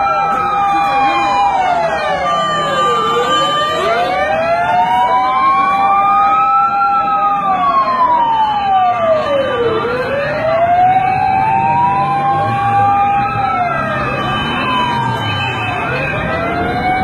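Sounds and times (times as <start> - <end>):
sirens wailing: 0.0 - 17.0.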